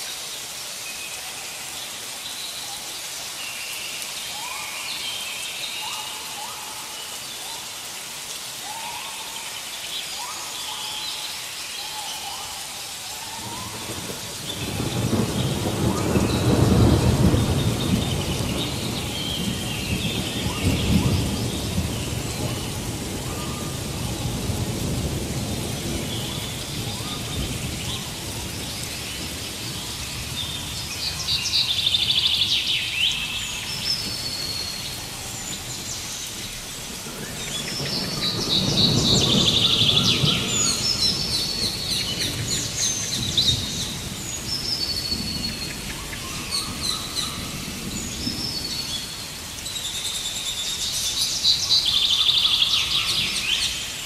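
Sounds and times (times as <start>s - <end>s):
rain on stream and leaves: 0.0s - 54.0s
low thunder rumbles: 13.4s - 49.4s.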